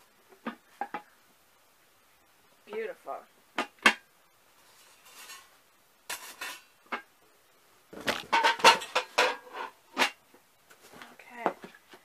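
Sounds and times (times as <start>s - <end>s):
faint rustle: 4.5s - 5.6s
pan clinking and knocking: 8.1s - 10.2s.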